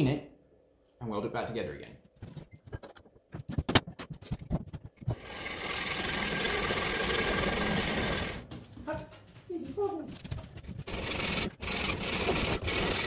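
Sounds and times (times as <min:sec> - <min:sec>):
small power tool cutting metal: 0:05.1 - 0:08.4, 0:10.9 - 0:13.0.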